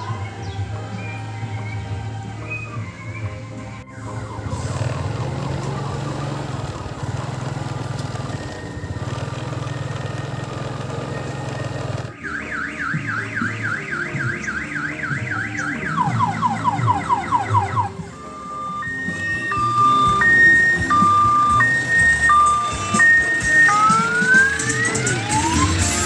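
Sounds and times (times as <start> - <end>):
electronic siren horn warbling: 0.0 - 9.9, 12.0 - 26.0
train engine running: 4.4 - 12.2, 17.9 - 26.0.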